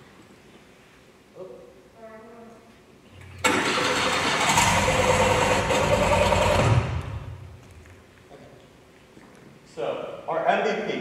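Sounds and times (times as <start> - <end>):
lawn mower engine over speakers: 3.4 - 7.4.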